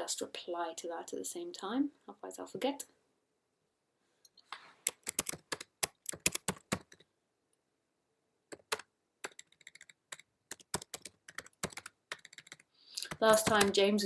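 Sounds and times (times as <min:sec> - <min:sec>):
computer keyboard typing: 0:04.8 - 0:07.1, 0:08.5 - 0:14.0.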